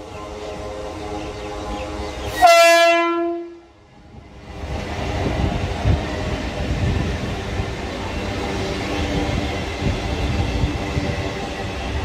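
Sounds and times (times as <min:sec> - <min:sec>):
train rumbling and rattling: 0:00.0 - 0:12.0
train horn blast: 0:02.3 - 0:03.7.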